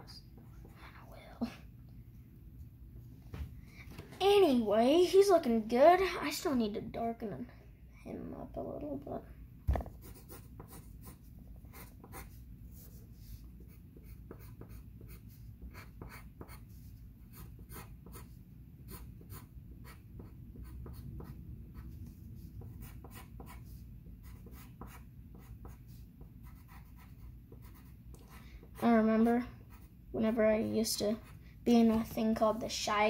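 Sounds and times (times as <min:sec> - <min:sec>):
pencil scratching on paper: 0:10.0 - 0:31.4.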